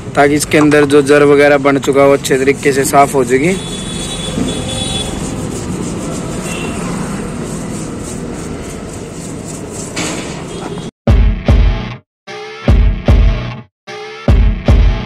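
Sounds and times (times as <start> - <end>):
brush scrubbing motor windings: 2.2 - 10.0.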